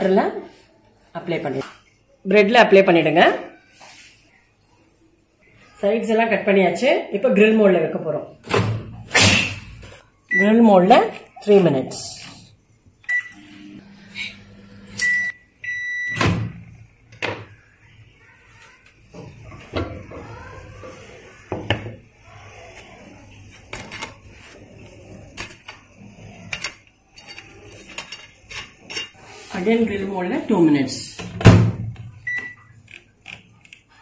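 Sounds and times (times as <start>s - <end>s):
microwave oven beeping: 13.0s - 16.8s, 32.2s - 32.7s.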